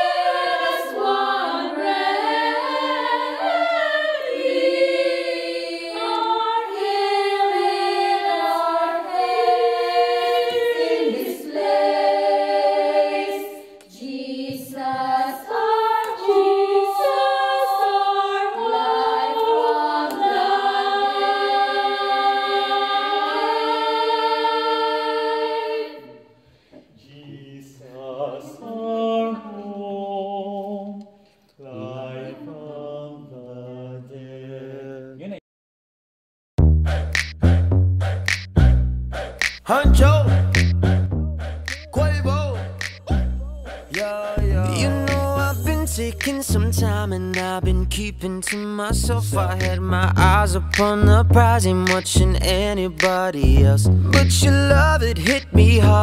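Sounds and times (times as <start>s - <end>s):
women's choir singing a cappella: 0.0s - 26.4s, 27.3s - 35.1s, 42.6s - 45.6s.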